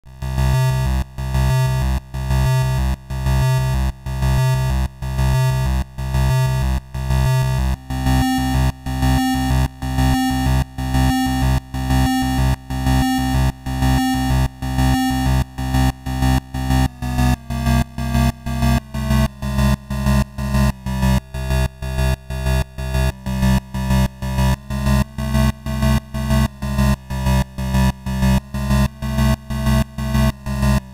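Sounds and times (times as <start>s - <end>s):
chiptune music: 7.2s - 30.9s.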